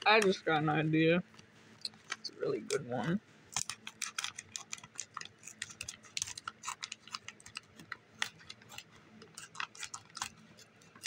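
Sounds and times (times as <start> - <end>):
bag crinkling: 3.6 - 10.4
scissors snipping foil bag: 3.6 - 11.0.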